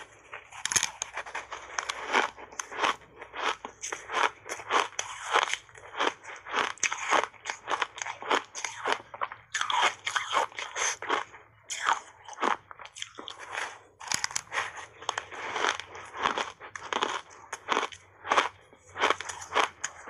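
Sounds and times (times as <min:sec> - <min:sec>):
ice being bitten and crunched: 0:00.0 - 0:20.0.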